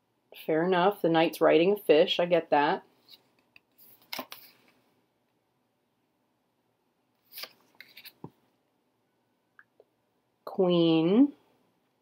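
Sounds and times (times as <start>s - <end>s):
cards sliding against each other: 3.0s - 4.8s, 7.2s - 8.3s.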